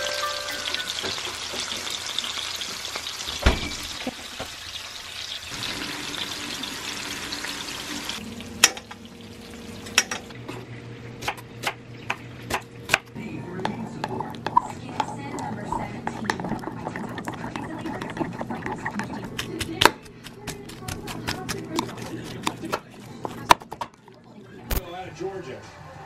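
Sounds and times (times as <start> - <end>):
meat sizzling in a frying pan: 0.7 - 8.2.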